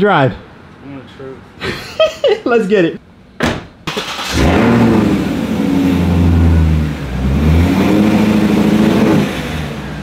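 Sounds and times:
car engine revving: 3.9 - 10.0.

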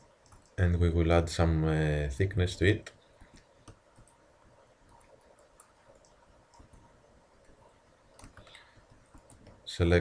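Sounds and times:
keyboard and mouse clicks: 0.0 - 0.6, 3.2 - 4.2, 4.8 - 9.6.

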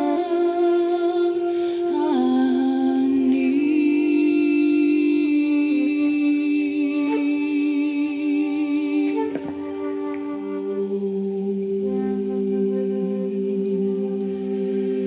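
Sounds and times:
singing bowl tone: 0.0 - 15.0
voices humming a wordless chant: 0.0 - 15.0.

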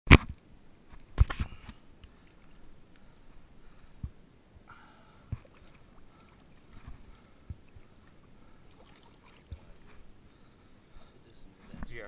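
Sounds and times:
river water sloshing: 1.0 - 11.8
soft low thumps: 5.3 - 8.6.

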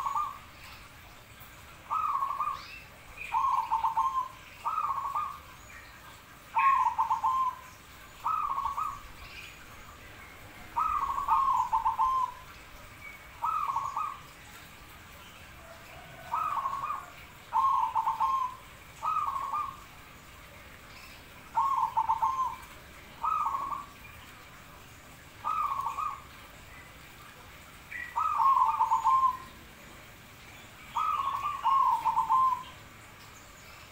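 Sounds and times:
dove cooing: 0.0 - 0.5, 1.9 - 2.6, 3.3 - 5.4, 6.5 - 9.2, 10.7 - 12.6, 13.4 - 14.3, 15.6 - 19.9, 21.5 - 24.0, 25.4 - 26.4, 28.1 - 29.6, 31.0 - 32.7.

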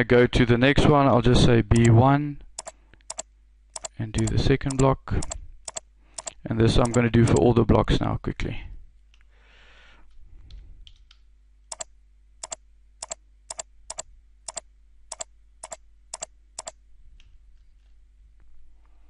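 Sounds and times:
computer mouse clicking: 2.6 - 3.2, 3.8 - 7.0, 10.5 - 16.8.

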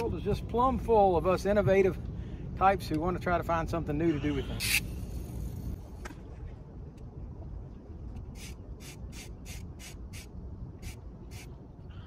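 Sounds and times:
wind rumble on microphone: 0.0 - 12.0
fishing reel cranking whir: 4.6 - 5.8.

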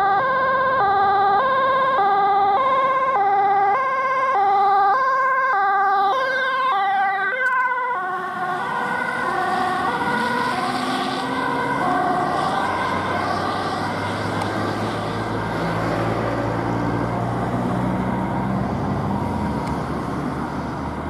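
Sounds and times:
ambulance two-tone siren: 0.0 - 19.7
tyre and engine noise: 0.0 - 21.0.

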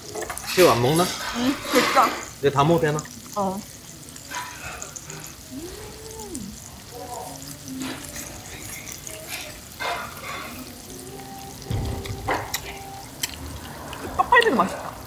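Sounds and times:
food sizzling on griddle: 0.0 - 15.0
chopsticks and dishes clicking: 11.6 - 14.5.

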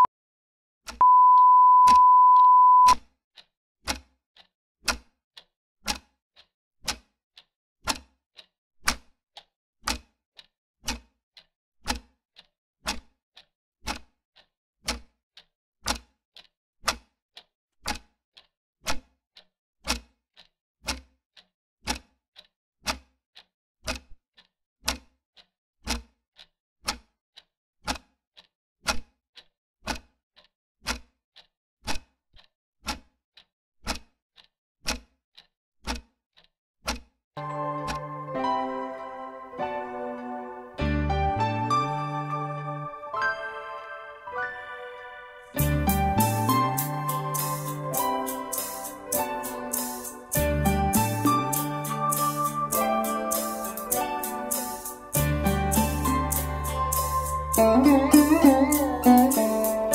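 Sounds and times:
clock ticking: 0.9 - 40.2, 45.5 - 59.9
steady high beep: 1.0 - 3.0.

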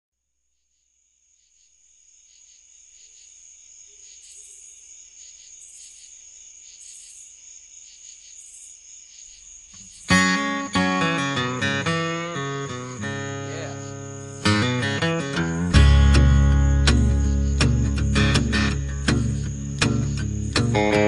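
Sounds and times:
crickets chirping: 0.4 - 21.0
acoustic guitar strumming: 10.1 - 21.0.

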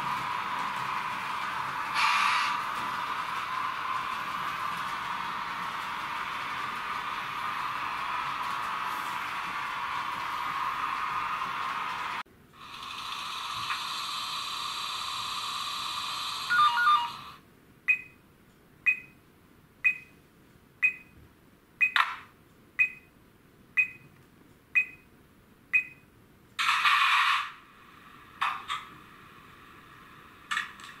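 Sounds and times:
steady hissing: 0.0 - 16.5
short electronic beeps: 18.9 - 19.2, 19.9 - 20.1, 22.8 - 23.1, 24.8 - 25.0.

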